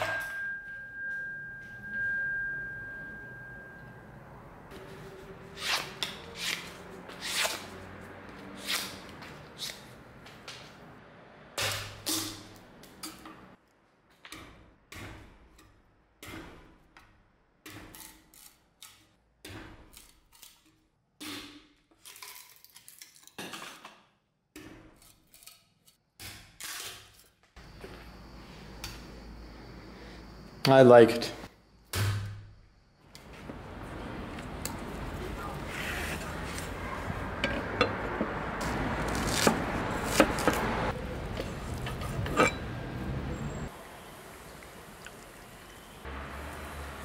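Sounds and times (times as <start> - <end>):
knife chopping wood: 37.6 - 40.9.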